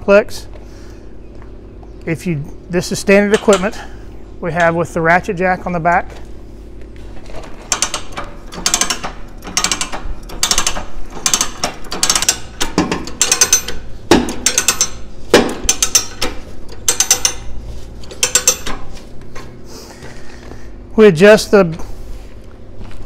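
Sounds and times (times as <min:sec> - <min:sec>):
ratchet pawl clicking: 0:07.7 - 0:15.0, 0:15.7 - 0:18.7.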